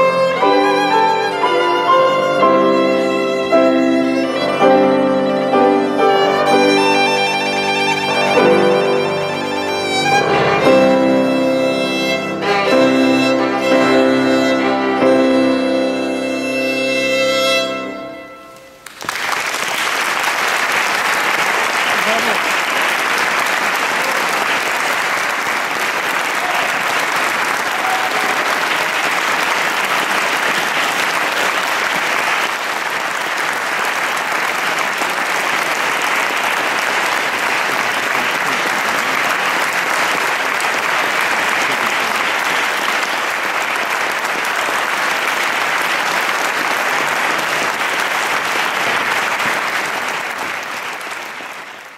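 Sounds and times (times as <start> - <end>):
audience applauding: 5.8 - 12.7, 17.6 - 51.9.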